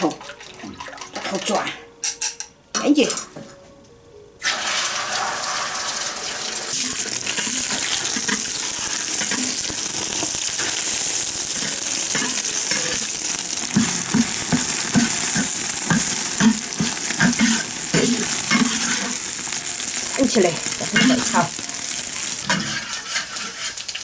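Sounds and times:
eggs sizzling in hot oil: 0:04.4 - 0:24.0
spatula scraping a wok: 0:06.8 - 0:19.6, 0:22.1 - 0:24.0.

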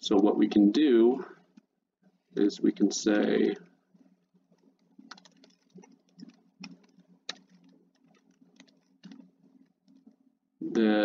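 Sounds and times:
computer keyboard typing: 0:04.5 - 0:10.2.

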